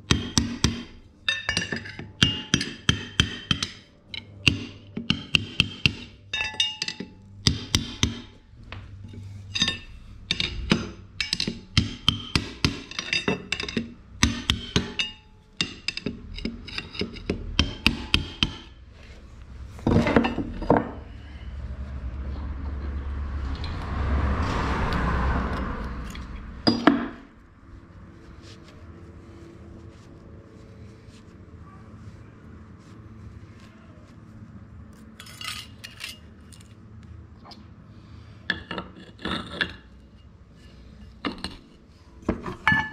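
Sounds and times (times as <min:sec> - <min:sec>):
hammer tapping on metal: 0:00.0 - 0:08.4, 0:09.6 - 0:18.8.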